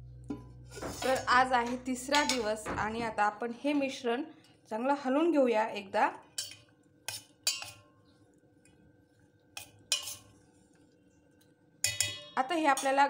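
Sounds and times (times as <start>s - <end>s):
metal spoon clinking bowl: 2.1s - 2.5s, 6.4s - 7.9s, 9.6s - 10.3s, 11.8s - 13.0s.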